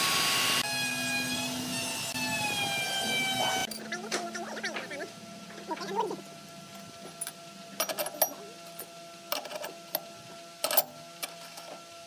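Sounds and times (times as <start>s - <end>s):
faint steady hum: 0.7s - 12.0s
metal parts clinking on iron table: 7.2s - 10.0s.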